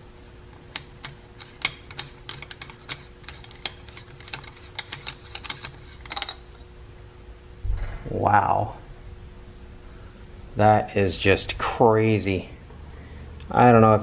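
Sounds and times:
metal canister unscrewing clicks: 0:00.7 - 0:06.4.

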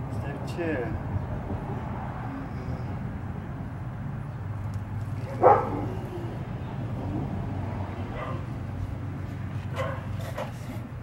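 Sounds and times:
dog barking: 0:05.2 - 0:06.0, 0:08.2 - 0:08.5, 0:09.7 - 0:10.5.

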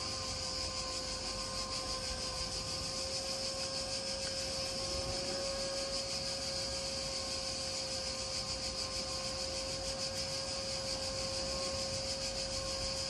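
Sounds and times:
motor machine humming and hissing: 0:00.0 - 0:13.0.

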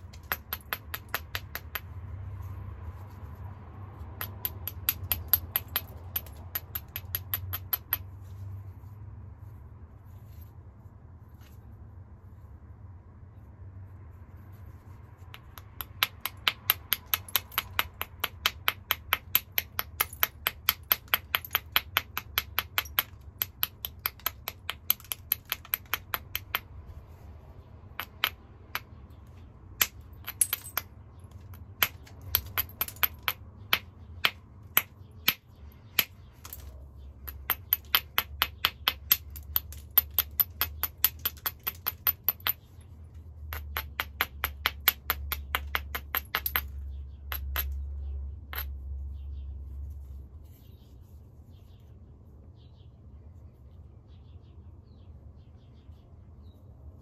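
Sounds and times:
stone knapping strokes: 0:00.0 - 0:02.3, 0:14.4 - 0:27.1, 0:27.8 - 0:47.9.

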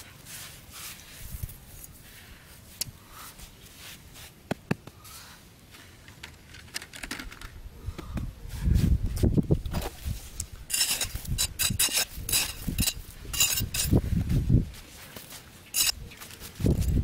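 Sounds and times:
hands scraping sand: 0:00.0 - 0:01.5, 0:09.8 - 0:14.1, 0:14.8 - 0:17.0.

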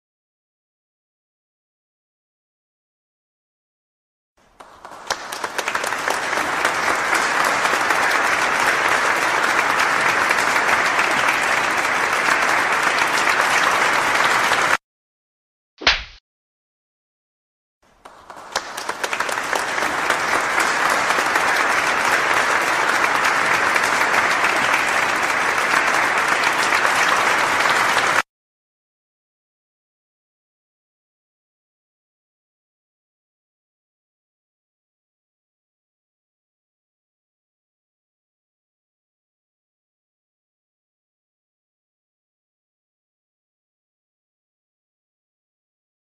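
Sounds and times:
crowd applause: 0:04.4 - 0:14.8, 0:17.9 - 0:28.3.

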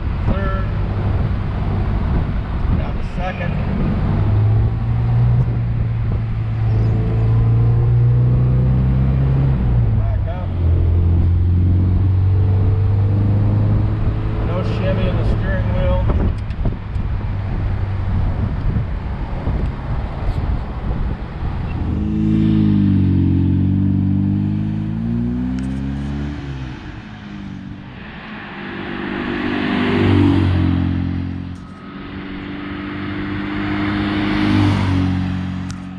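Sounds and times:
wind and road noise: 0:00.0 - 0:35.9.

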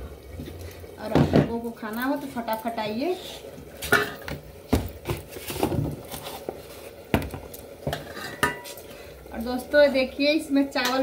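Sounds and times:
steel kitchen vessels clattering: 0:03.8 - 0:04.4, 0:07.9 - 0:08.8.

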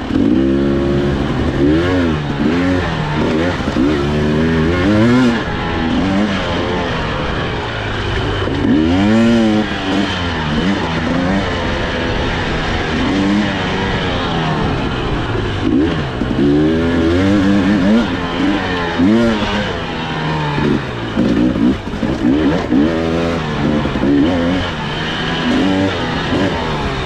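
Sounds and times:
dirt bike engine revving: 0:00.0 - 0:27.0
rough rushing noise: 0:00.0 - 0:27.0.

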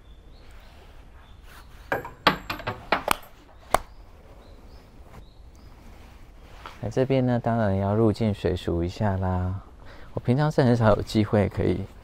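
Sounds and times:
coins clinking into wooden box: 0:01.9 - 0:03.4.

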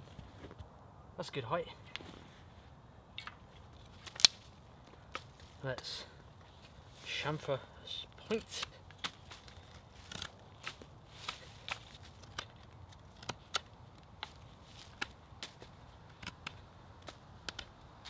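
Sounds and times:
knife blade shaving wood: 0:08.3 - 0:15.1.

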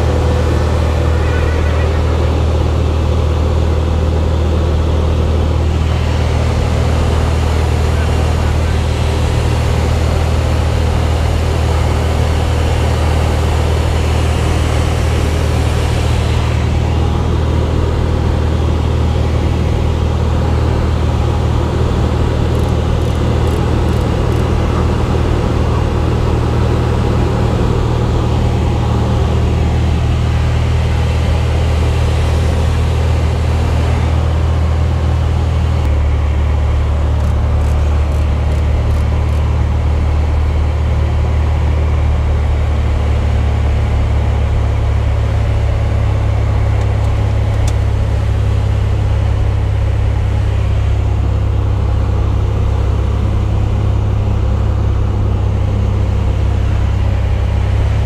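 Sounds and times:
light aircraft engine drone: 0:00.0 - 0:58.0.

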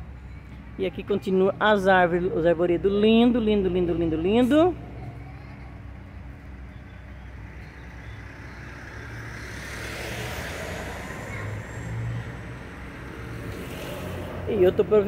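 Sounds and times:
low traffic hum: 0:00.0 - 0:15.0
car passing: 0:05.8 - 0:15.0.

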